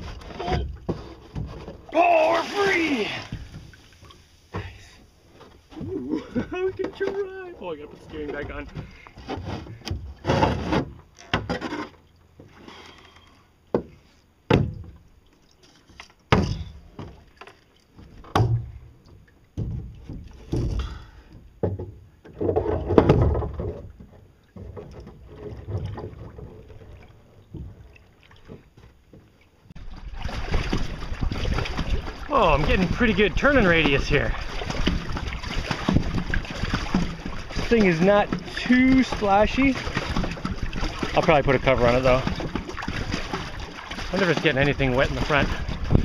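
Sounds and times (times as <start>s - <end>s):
rustling and scraping: 0.0s - 1.9s, 3.3s - 14.2s
knocks and thumps on metal frame: 8.1s - 11.7s, 13.7s - 15.0s, 16.3s - 17.2s, 18.2s - 18.8s, 19.6s - 21.0s, 21.6s - 26.5s, 29.8s - 46.0s.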